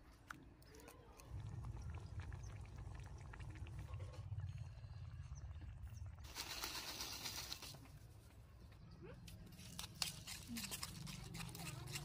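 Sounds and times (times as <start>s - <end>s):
low rumble: 1.3s - 6.2s.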